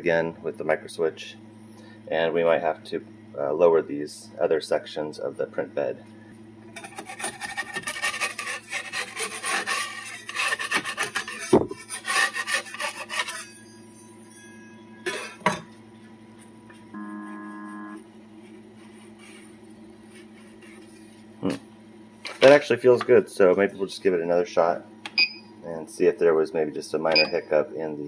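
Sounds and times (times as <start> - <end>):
metal scraper scraping plastic: 6.8 - 13.5
short buzz: 16.6 - 18.1.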